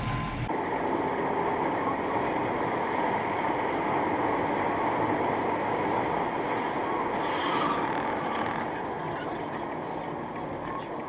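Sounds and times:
car road and wind noise: 0.0s - 11.0s.

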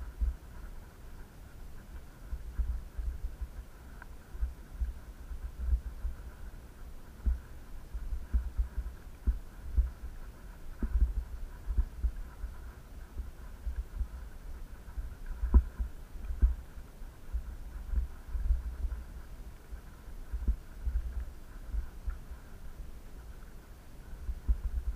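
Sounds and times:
faint high whine: 0.0s - 24.9s
low thumps on camera microphone: 7.2s - 16.7s, 17.3s - 19.2s, 20.3s - 22.2s, 24.3s - 24.9s.

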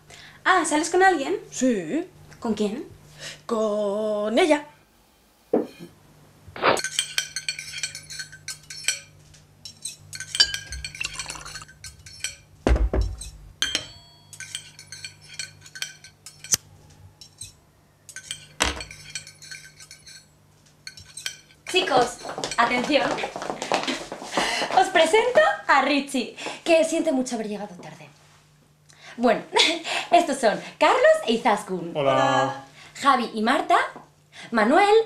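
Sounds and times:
plates and glasses clinking: 6.7s - 16.6s, 17.2s - 23.2s
forks tapping on plates: 6.8s - 16.6s, 17.2s - 23.2s
dull thud: 12.7s - 13.2s.

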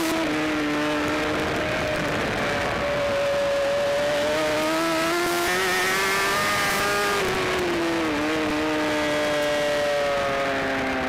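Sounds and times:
wind rush: 0.0s - 11.0s.

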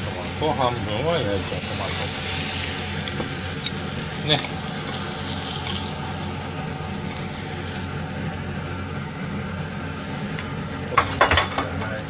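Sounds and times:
kitchen hum and hiss: 0.0s - 12.0s
utensils knocking on counter: 11.0s - 11.8s.

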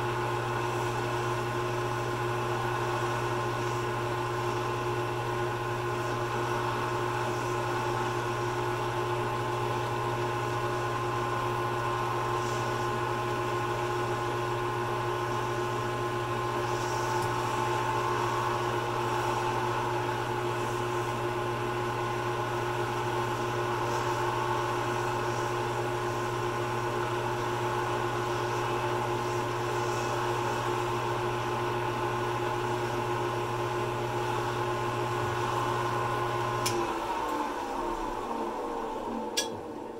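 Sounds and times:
wood lathe motor hum: 0.0s - 39.9s
cloth polishing on lathe: 11.6s - 36.5s.

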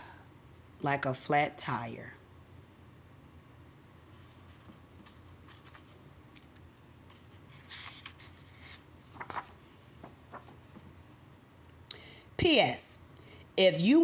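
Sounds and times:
paper rustling: 4.1s - 11.2s.

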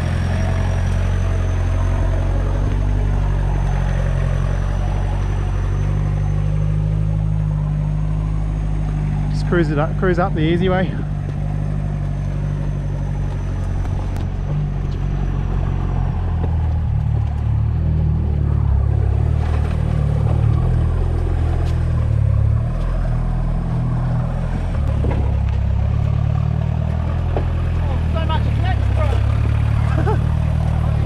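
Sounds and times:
diesel engine droning under load: 0.0s - 31.0s.

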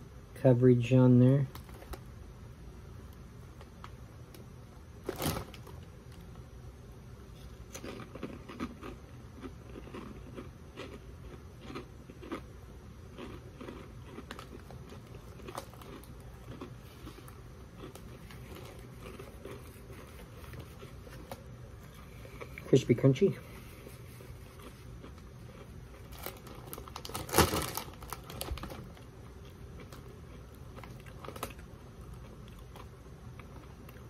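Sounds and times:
onion ring crunching: 7.3s - 12.5s, 13.1s - 22.7s, 24.0s - 34.0s
chewing crisp crunches: 7.3s - 22.7s, 23.4s - 34.0s.

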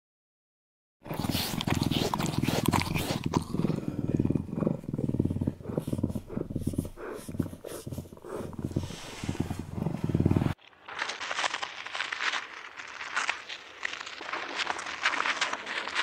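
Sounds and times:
large animal growling: 1.1s - 10.6s.

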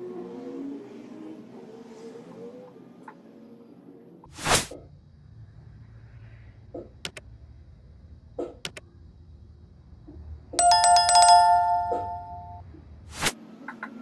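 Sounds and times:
mouse clicks: 8.6s - 8.8s
notification bell chime: 10.6s - 12.6s.

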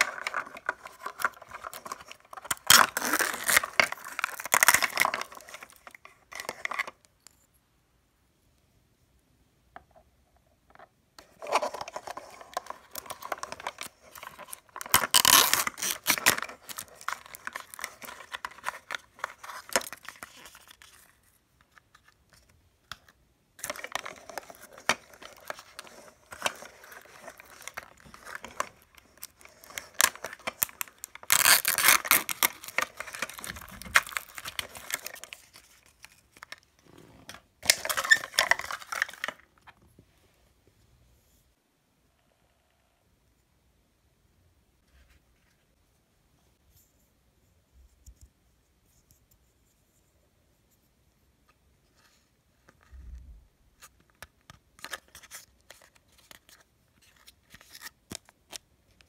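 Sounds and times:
plastic wrappers crinkling and tearing: 0.0s - 6.8s, 11.4s - 21.0s, 23.6s - 36.6s, 37.6s - 39.5s.

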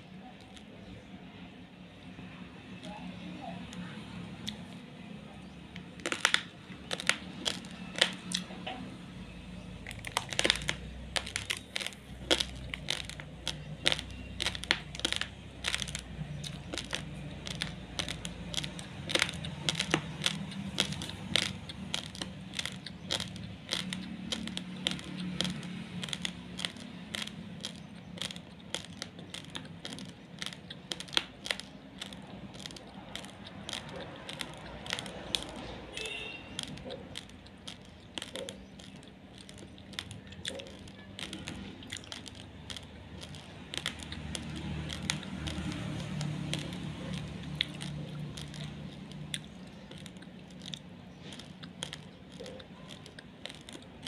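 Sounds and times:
raw rice grains crunched: 2.1s - 54.0s.

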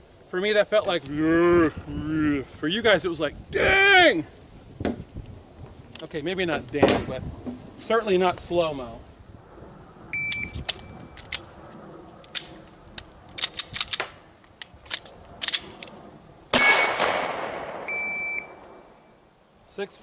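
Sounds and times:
shot timer beep: 10.2s - 10.6s, 17.9s - 18.6s
gun handling clicks and clacks: 10.3s - 11.5s, 12.2s - 16.0s
gunshot with ringing echo: 16.5s - 18.9s.

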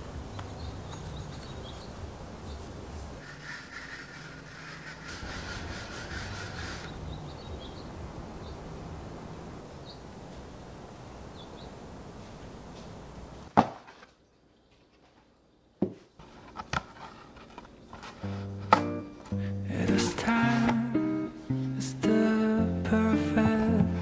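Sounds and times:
dryer sheet rubbing on screen: 2.6s - 7.0s
bird chirps: 6.8s - 8.6s.

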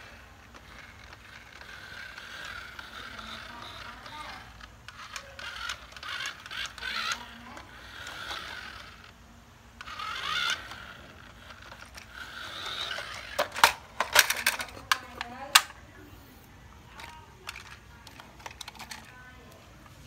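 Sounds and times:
plastic toy clattering on tile floor: 0.0s - 9.2s, 9.8s - 15.8s, 16.8s - 19.6s
toy truck motor whirring: 0.0s - 15.8s, 16.8s - 20.0s.

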